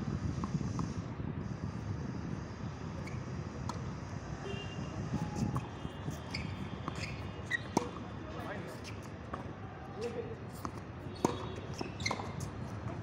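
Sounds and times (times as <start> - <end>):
racket hitting tennis ball: 5.4 - 13.0
tennis ball bouncing: 5.4 - 13.0.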